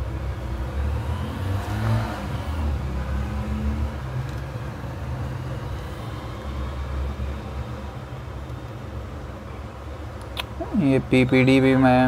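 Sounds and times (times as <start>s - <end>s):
small motor humming: 0.6s - 8.4s.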